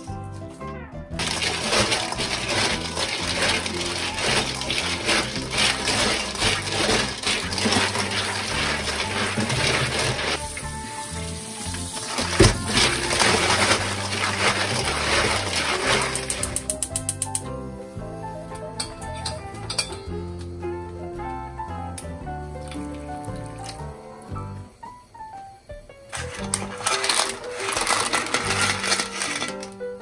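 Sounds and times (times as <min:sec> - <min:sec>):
background music: 0:00.0 - 0:30.0
running tap water: 0:01.1 - 0:17.4, 0:26.1 - 0:29.8
cockle shells clattering in a bowl: 0:26.2 - 0:29.8.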